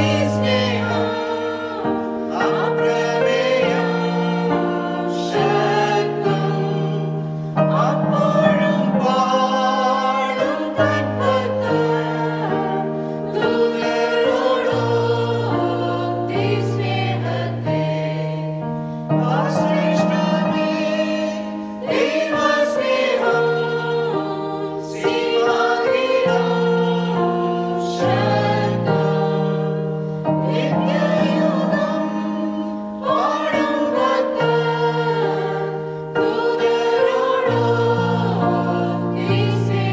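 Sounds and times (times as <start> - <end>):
choir singing a hymn: 0.0 - 39.9.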